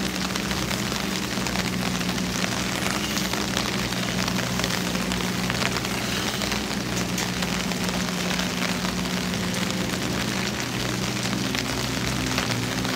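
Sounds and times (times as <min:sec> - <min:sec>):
low hum: 0:00.0 - 0:12.9
steady rain falling: 0:00.0 - 0:12.9.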